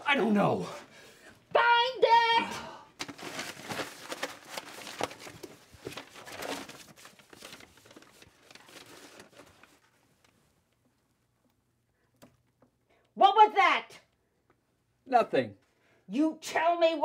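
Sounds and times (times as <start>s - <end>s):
papers and folders rustling: 3.0s - 10.9s.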